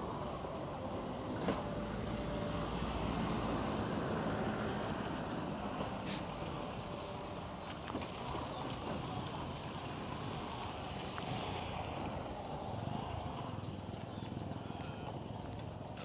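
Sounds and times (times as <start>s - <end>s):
motorcycle approaching: 8.2s - 16.0s.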